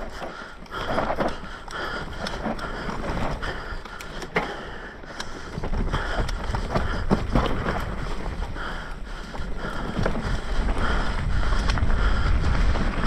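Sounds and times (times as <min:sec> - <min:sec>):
bike rattling: 0:00.0 - 0:13.0
bike tyres on dirt trail: 0:00.0 - 0:13.0
wind buffeting microphone: 0:05.5 - 0:13.0.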